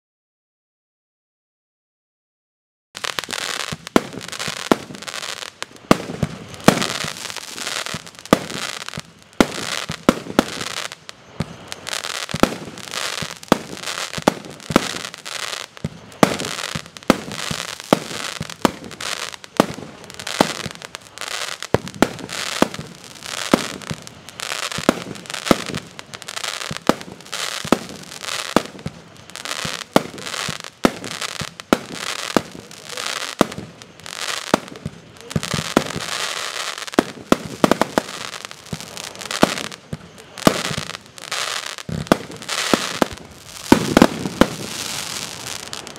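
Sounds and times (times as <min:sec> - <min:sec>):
firework bursts hissing and crackling: 0:03.0 - 0:45.9.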